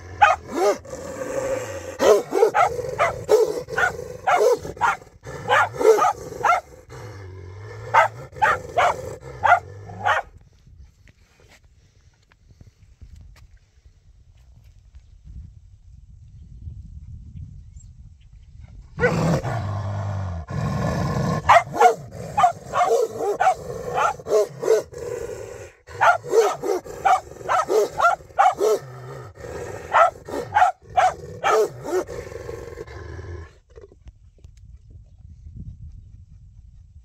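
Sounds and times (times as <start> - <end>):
dog growling: 0.0 - 10.2, 19.0 - 33.9
dogs barking and snarling: 0.0 - 10.4, 19.0 - 33.9.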